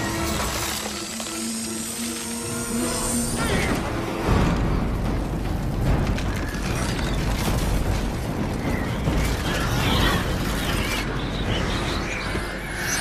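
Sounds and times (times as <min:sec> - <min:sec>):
ice crackling and creaking: 0:00.0 - 0:13.0.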